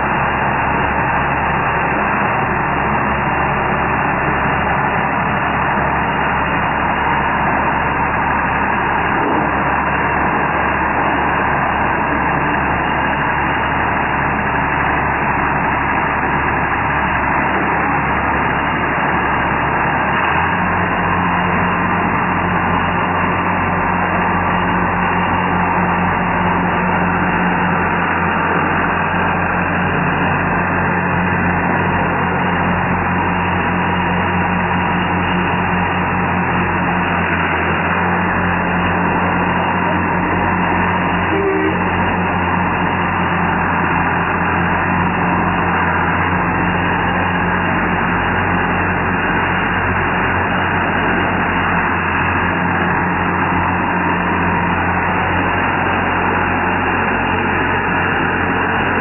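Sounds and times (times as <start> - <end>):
tractor engine running: 0.0 - 59.0.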